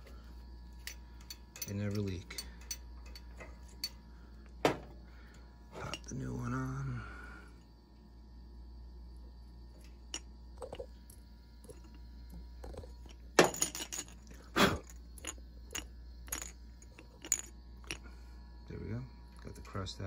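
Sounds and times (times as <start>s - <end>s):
steady low hum: 0.0s - 20.0s
metallic clinks and knocks: 0.7s - 4.9s, 9.8s - 18.2s.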